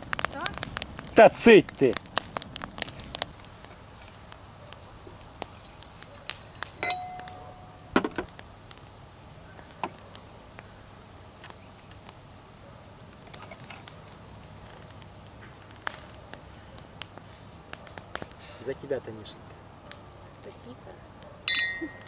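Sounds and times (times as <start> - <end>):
wine glass ringing: 6.8 - 7.8, 21.5 - 22.0.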